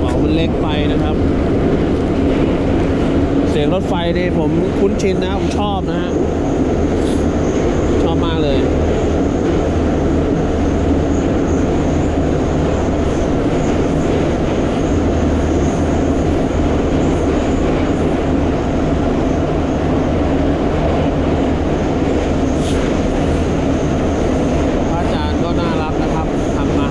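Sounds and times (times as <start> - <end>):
train wheels on rails: 0.0 - 26.9.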